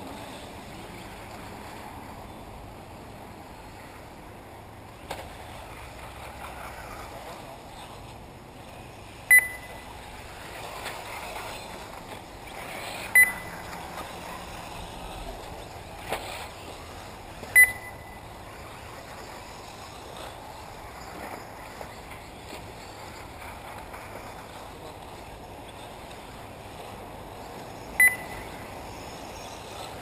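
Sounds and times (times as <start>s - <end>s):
outdoor race noise: 0.0s - 30.0s
loud electronic beeps: 13.2s - 13.5s, 28.0s - 28.5s.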